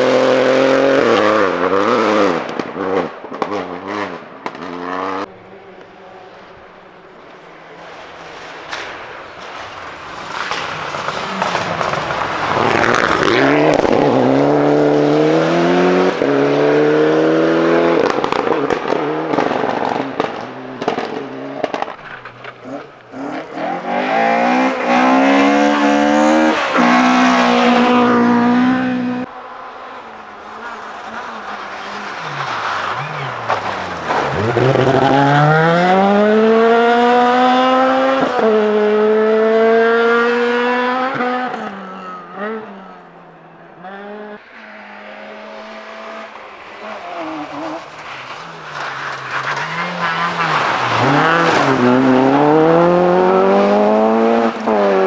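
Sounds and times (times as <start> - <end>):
rally car engines accelerating: 0.0 - 55.0
sharp cracks: 18.0 - 23.4.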